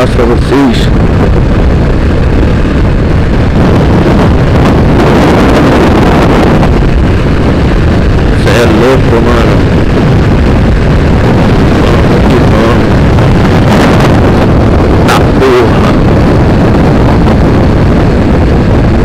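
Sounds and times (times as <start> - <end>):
wind rushing over microphone: 0.0 - 19.0
motorcycle engine running: 0.8 - 19.0.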